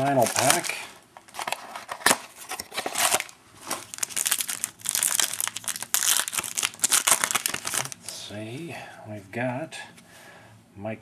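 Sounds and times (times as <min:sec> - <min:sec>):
plastic wrapping crinkling and tearing: 0:00.0 - 0:08.2.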